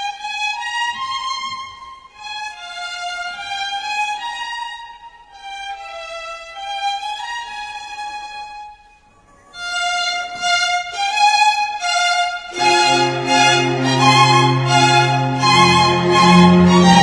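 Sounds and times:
solo instrument melody: 9.7s - 17.0s.

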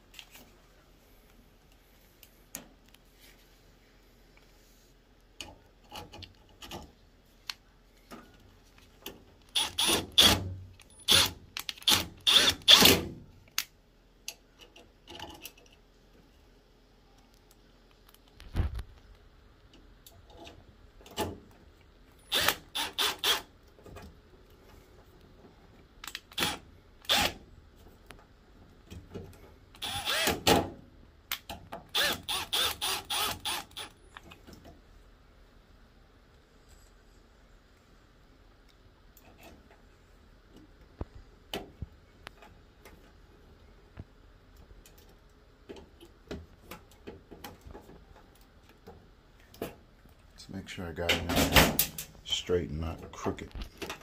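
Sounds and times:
screwdriver clicking: 29.8s - 30.4s, 31.3s - 34.0s.

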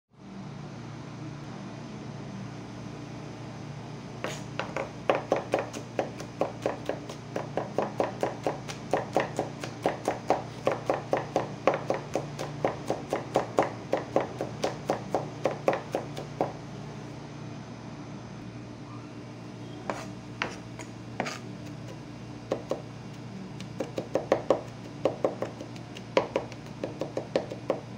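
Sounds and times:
knife chopping on wooden board: 4.2s - 16.6s, 19.9s - 27.9s.

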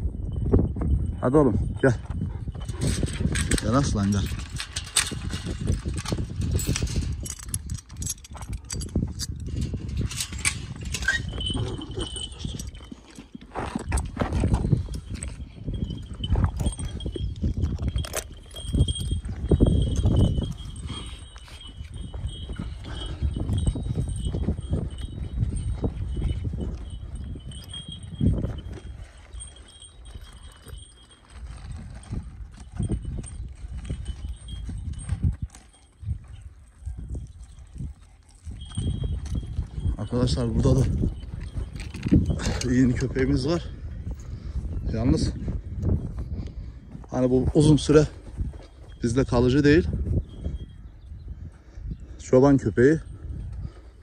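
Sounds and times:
dog footsteps on dry grass: 10.7s - 42.6s.

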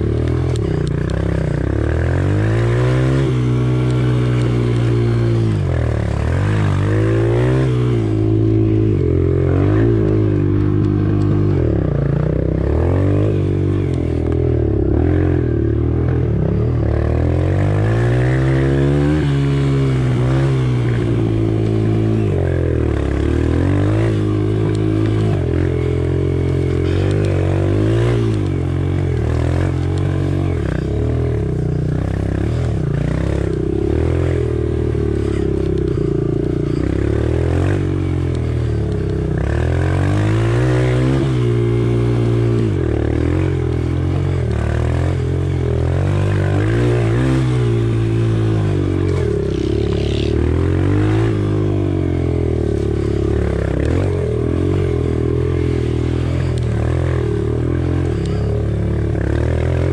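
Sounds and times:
off-road bike engine revving: 0.0s - 59.9s.

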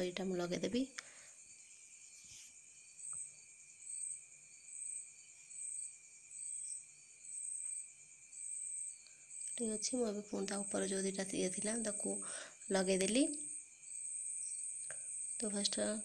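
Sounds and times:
insect chirping: 0.0s - 16.0s.

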